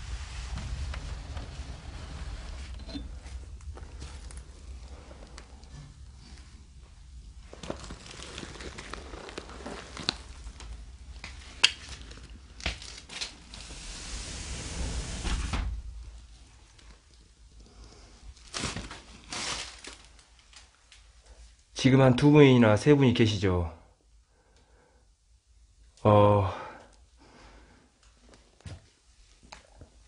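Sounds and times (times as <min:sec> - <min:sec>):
rustling: 0:00.0 - 0:21.6.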